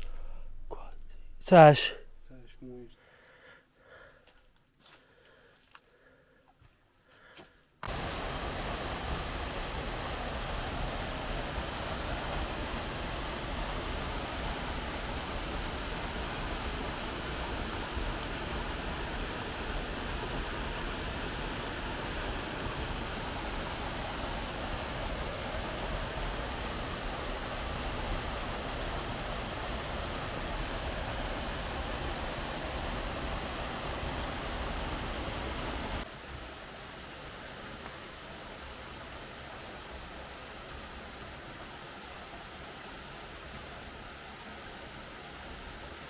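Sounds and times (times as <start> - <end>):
waterfall rushing: 7.8 - 46.0.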